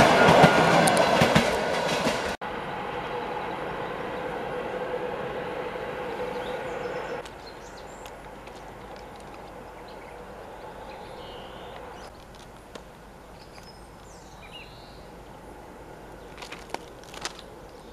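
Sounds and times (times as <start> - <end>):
electric train running: 0.0 - 7.3
bird chirps: 6.1 - 8.1, 9.7 - 12.2, 13.3 - 15.1.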